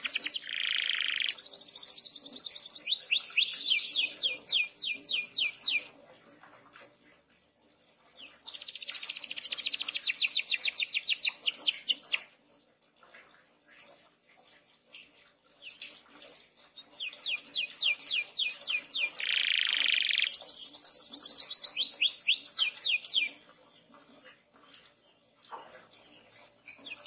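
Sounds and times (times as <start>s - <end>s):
canary singing trills: 0.0s - 6.0s, 8.1s - 12.3s, 16.6s - 23.5s, 26.2s - 27.0s.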